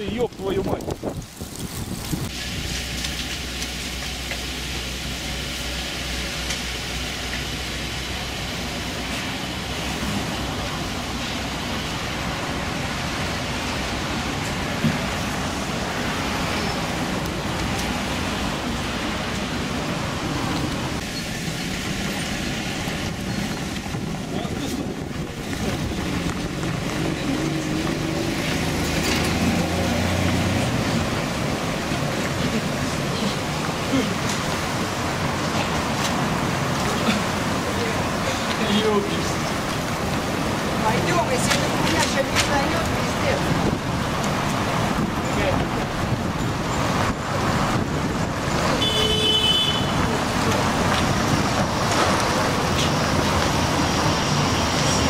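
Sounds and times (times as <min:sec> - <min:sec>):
strong wind rushing: 0:00.0 - 0:02.8, 0:09.5 - 0:38.2, 0:42.7 - 0:48.8
wind buffeting microphone: 0:00.0 - 0:02.9, 0:12.7 - 0:38.6, 0:39.4 - 0:48.8
cars passing: 0:00.0 - 0:55.0.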